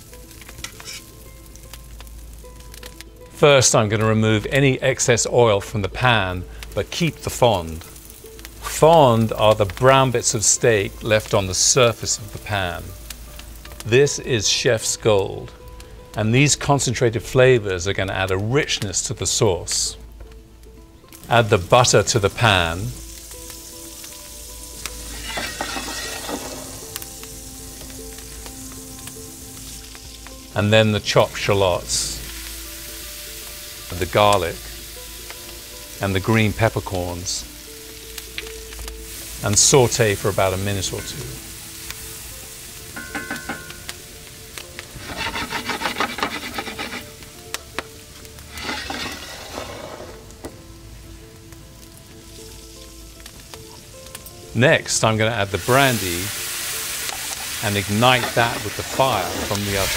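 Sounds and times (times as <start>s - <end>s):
butter sizzling and popping in skillet: 0.0s - 59.9s
skillet scraping across tiles: 25.1s - 26.8s, 44.9s - 47.3s, 48.4s - 50.3s.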